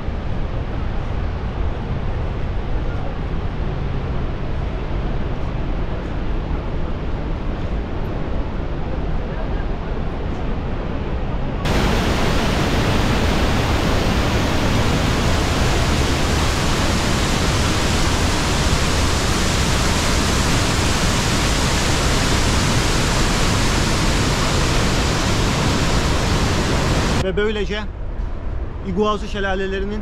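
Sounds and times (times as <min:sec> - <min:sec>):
waterfall rushing: 0:11.7 - 0:27.2.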